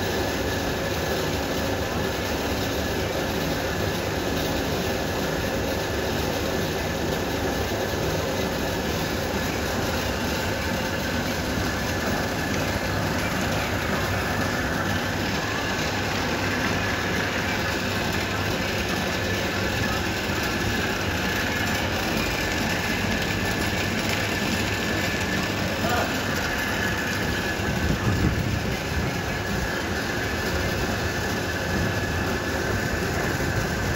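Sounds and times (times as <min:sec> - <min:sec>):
wet grinder rumbling grind: 0:08.0 - 0:33.9.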